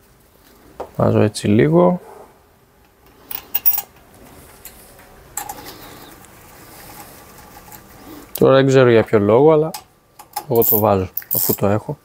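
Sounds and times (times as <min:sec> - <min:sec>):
metal tool clinking on metal: 0:03.3 - 0:03.9.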